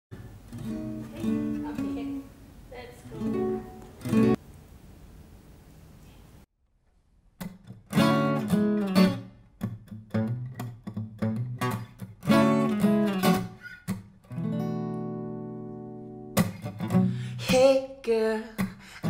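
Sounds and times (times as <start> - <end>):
acoustic guitar strumming chords: 0.2 - 2.4, 3.0 - 4.4, 7.8 - 18.9.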